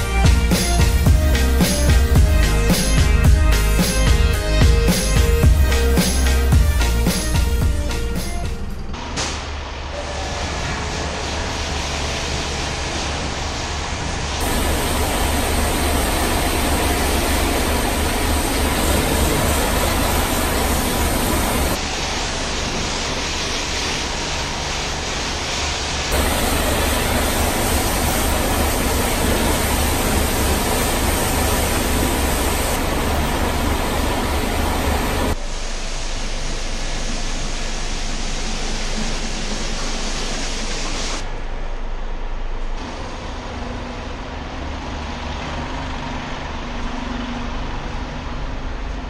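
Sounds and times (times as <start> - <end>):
pressure washer spraying water: 0.0 - 8.5, 10.8 - 41.2.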